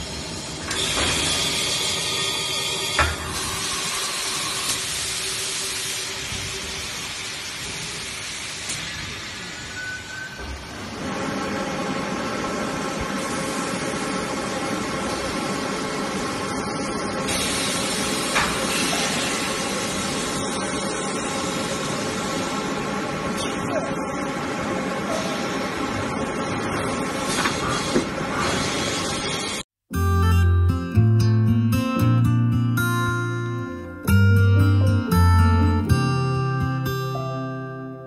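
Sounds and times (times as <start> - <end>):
hiss of air: 0.7 - 9.9, 17.3 - 22.7.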